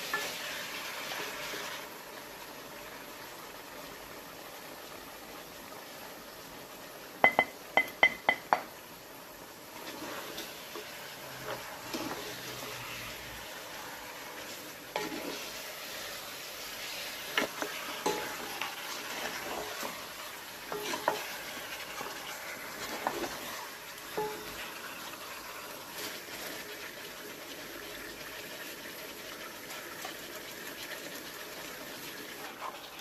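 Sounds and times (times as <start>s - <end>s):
bowl tapping metal pot: 7.2s - 8.7s
wooden spoon stirring in pot: 9.7s - 27.6s.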